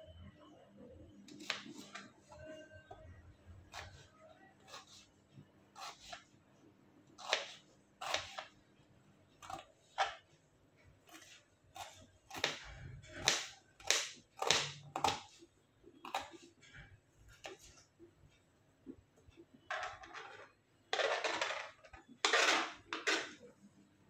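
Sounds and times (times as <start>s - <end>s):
knife chopping onion on board: 7.2s - 8.5s, 11.1s - 15.3s.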